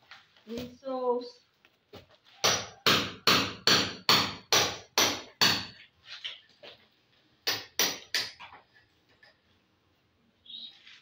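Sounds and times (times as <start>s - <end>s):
hammer strikes: 2.4s - 5.8s, 7.4s - 8.4s.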